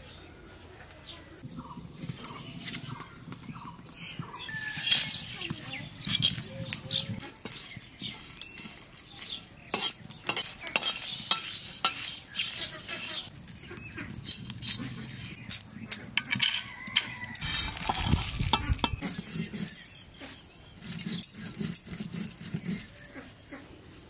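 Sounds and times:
metal spatula scraping spices in pan: 4.4s - 23.2s
spices rattling onto metal plate: 9.7s - 13.2s, 16.2s - 20.0s.

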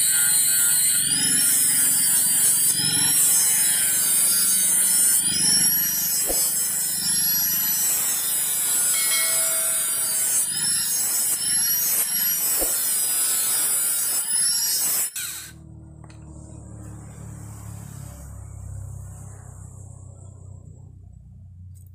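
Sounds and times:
angle grinder grinding steel: 0.0s - 15.6s.

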